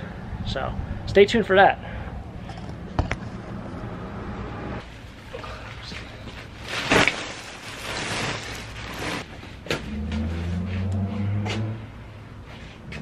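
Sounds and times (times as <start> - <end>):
rustling: 4.8 - 9.5.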